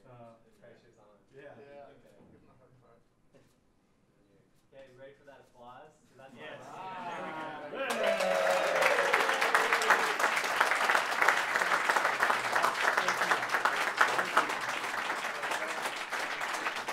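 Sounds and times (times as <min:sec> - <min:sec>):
audience applauding: 0:07.0 - 0:16.9.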